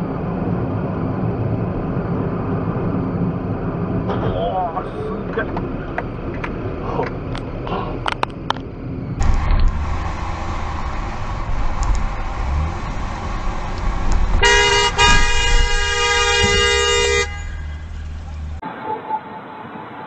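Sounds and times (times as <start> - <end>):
car driving rumble: 0.0 - 18.6
car horn long blast: 14.4 - 18.4.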